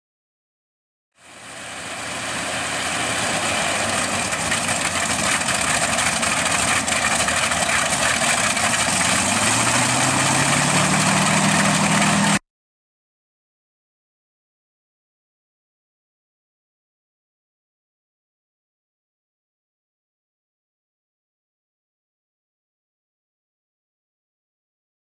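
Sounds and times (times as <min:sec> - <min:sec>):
aircraft engines running: 0:01.2 - 0:12.4
low rising tone: 0:01.2 - 0:12.4.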